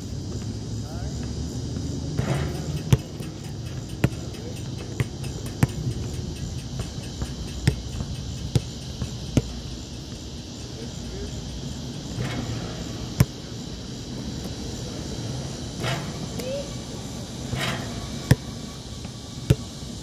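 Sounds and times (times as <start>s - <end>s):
insects chirping: 0.0s - 20.0s
basketball bouncing on asphalt: 0.3s - 10.7s, 12.1s - 14.8s, 17.5s - 19.8s.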